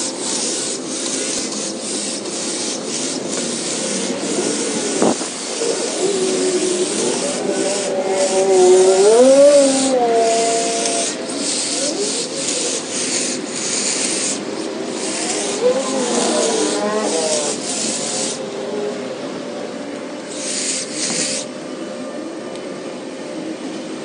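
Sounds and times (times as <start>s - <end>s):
trimmer blades cutting leaves: 0.0s - 19.0s, 20.2s - 21.6s
hedge trimmer motor hum: 1.1s - 19.0s.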